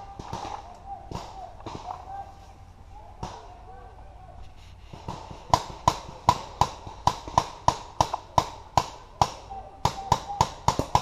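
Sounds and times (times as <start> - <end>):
paintball marker shots: 4.9 - 11.0.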